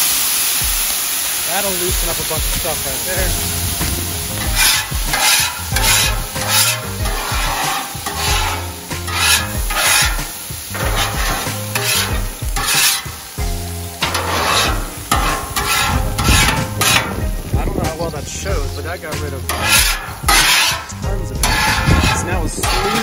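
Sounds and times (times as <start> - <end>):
water sizzling on hot griddle: 0.0 - 23.0
metal scraper scraping griddle: 3.2 - 13.4, 14.0 - 17.4, 19.3 - 23.0.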